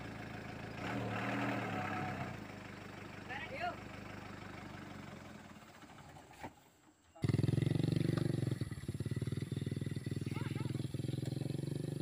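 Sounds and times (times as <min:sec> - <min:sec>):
motorcycle engine revving in mud: 0:00.7 - 0:02.6, 0:07.2 - 0:12.0
diesel truck engine idling: 0:01.7 - 0:05.8.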